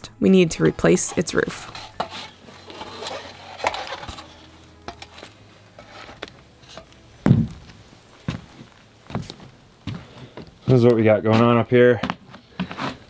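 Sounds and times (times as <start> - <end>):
footsteps on wooden boards: 6.1 - 13.0
heavy thud of foot on board: 7.2 - 7.7.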